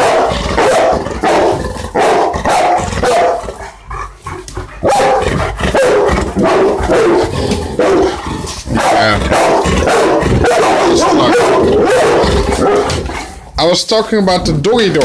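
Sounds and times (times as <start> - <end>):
dog barking: 0.0 - 3.6, 4.8 - 13.1.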